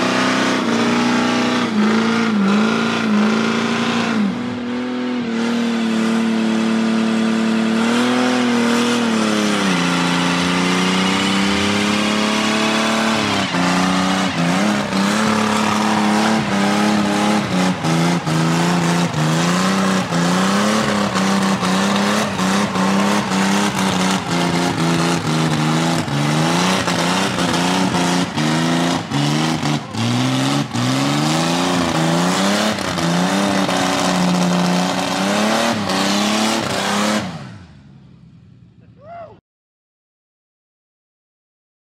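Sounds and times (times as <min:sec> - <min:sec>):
engine at high revs: 0:00.0 - 0:37.8
sharp cracks: 0:21.0 - 0:27.6.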